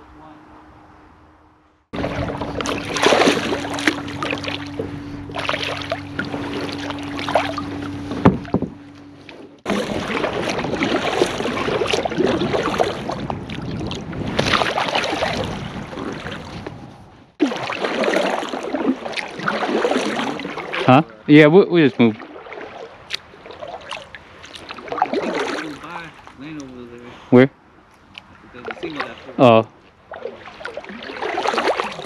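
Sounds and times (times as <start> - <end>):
steady low hum: 0.0 - 14.2
water swishing along hull: 1.8 - 32.0
paddle splashing in water: 2.0 - 16.8, 17.4 - 21.2, 21.8 - 26.8, 28.6 - 32.0.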